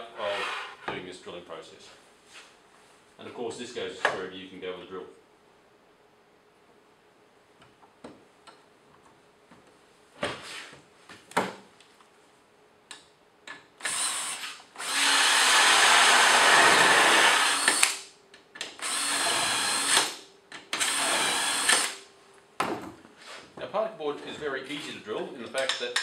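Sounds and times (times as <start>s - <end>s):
cordless drill boring holes: 13.8s - 18.0s, 18.8s - 22.0s.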